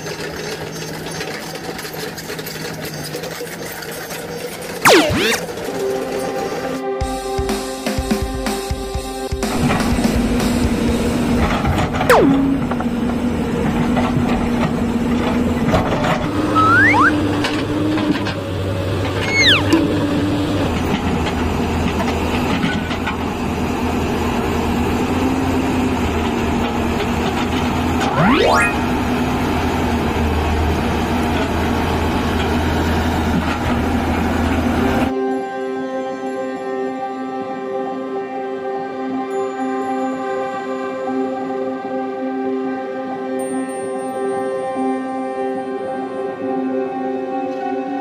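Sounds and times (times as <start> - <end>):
short squeals sweeping in pitch: 4.9 - 5.5, 16.5 - 17.2, 19.2 - 20.0, 28.1 - 28.8.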